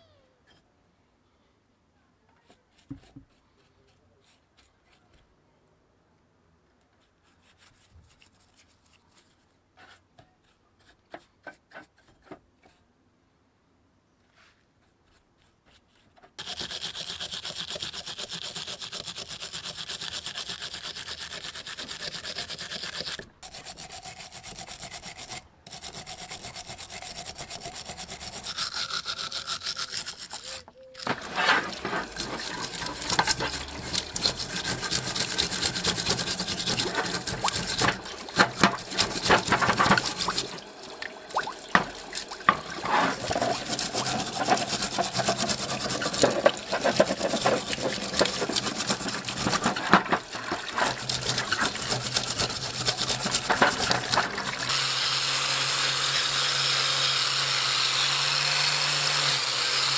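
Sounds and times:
wire brush scratching metal: 0:16.4 - 0:40.6, 0:41.3 - 0:56.3.

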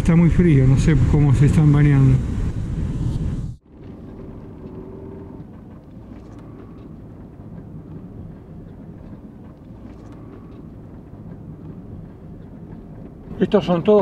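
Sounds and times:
van engine and tyres rumbling: 0:00.0 - 0:14.0.

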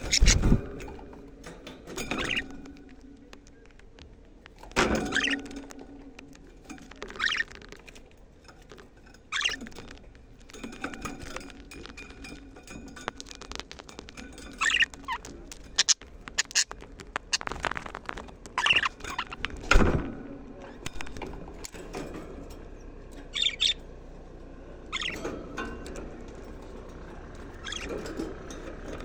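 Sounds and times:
budgerigars chirping: 0:00.0 - 0:00.5, 0:02.1 - 0:02.5, 0:05.0 - 0:05.5, 0:07.2 - 0:07.6, 0:09.3 - 0:09.7, 0:14.5 - 0:17.5, 0:18.6 - 0:19.4, 0:23.3 - 0:23.8, 0:24.9 - 0:25.2, 0:27.6 - 0:28.0
birds rattling wire cage: 0:00.0 - 0:29.0.

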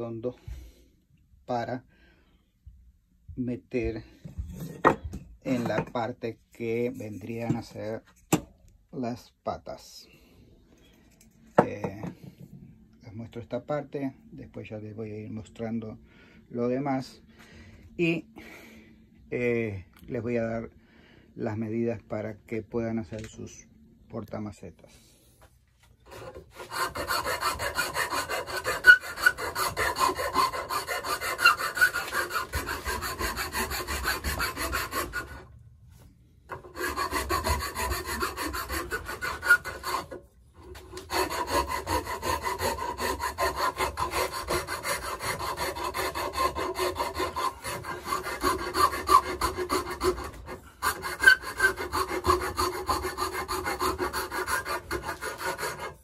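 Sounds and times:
wood rasp filing: 0:26.0 - 0:35.5, 0:36.5 - 0:56.0.

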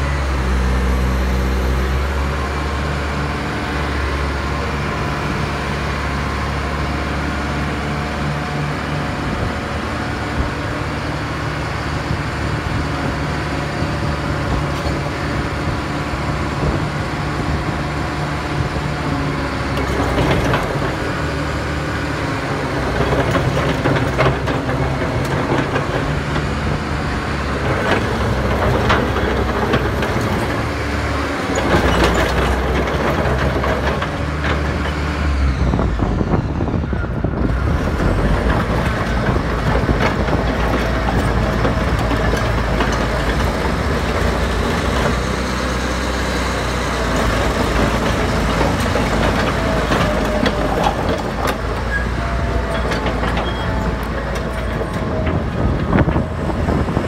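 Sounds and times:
diesel engine running: 0:00.0 - 0:57.0
clanking track links: 0:22.4 - 0:35.0, 0:37.4 - 0:57.0.

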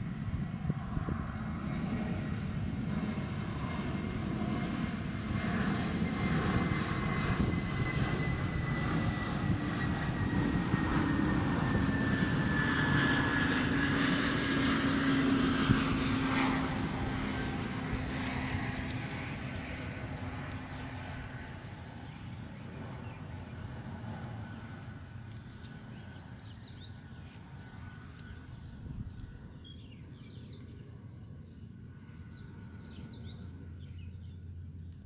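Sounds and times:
airplane engine drone: 0:00.0 - 0:35.0.

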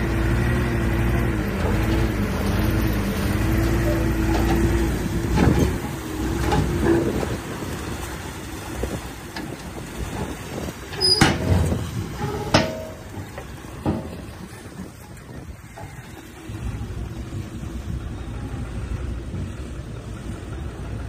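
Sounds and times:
heavy machinery rumbling: 0:00.0 - 0:21.0
sharp metal clanks: 0:11.0 - 0:14.2.

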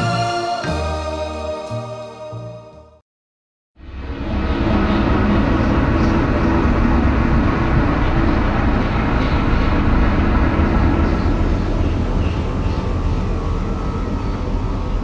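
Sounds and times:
loud vehicle rumble: 0:03.8 - 0:15.0.

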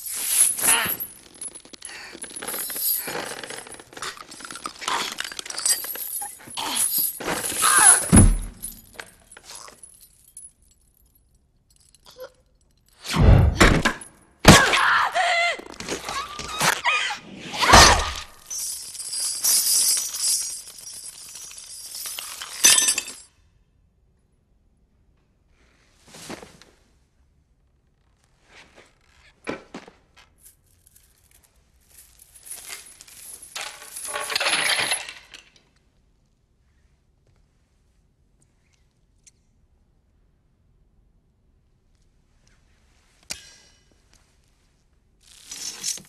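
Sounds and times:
clattering breaking noise: 0:00.1 - 0:09.6
heavy thudding blows: 0:13.1 - 0:14.7.

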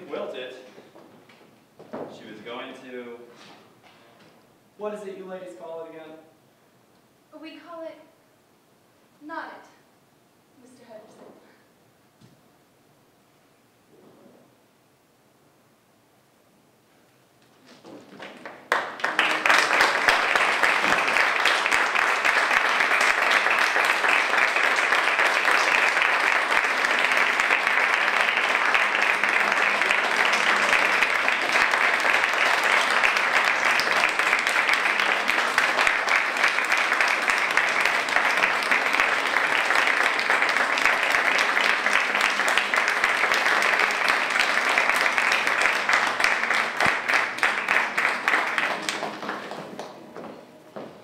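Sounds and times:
audience applauding: 0:17.7 - 0:51.0.

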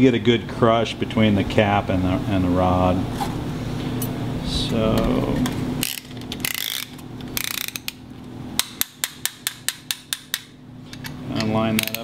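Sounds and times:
sharp ratchet clicks: 0:05.8 - 0:08.0.

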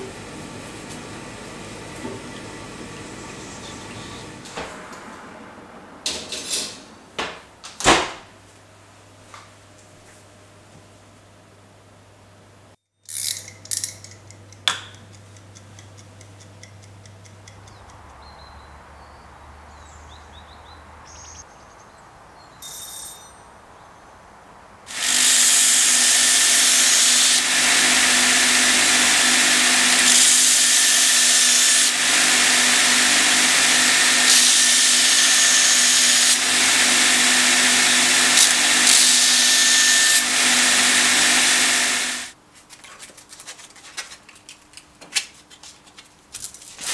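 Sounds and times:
belt grinder grinding steel blade: 0:13.1 - 0:14.3, 0:24.9 - 0:42.3
kitchen timer ticking: 0:14.0 - 0:18.1.

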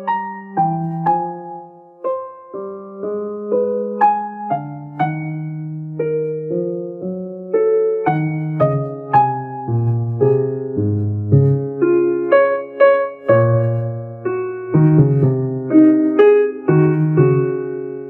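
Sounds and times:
keyboard playing notes and chords: 0:00.0 - 0:18.0.

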